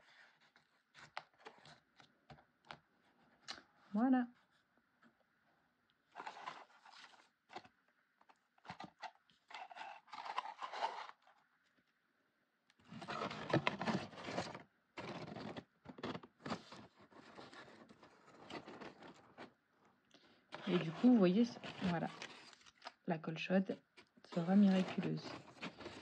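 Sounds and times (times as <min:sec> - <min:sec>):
paper rustling and scraping: 0:06.1 - 0:07.7, 0:08.6 - 0:11.4, 0:12.8 - 0:19.6, 0:20.5 - 0:23.0, 0:23.9 - 0:26.0.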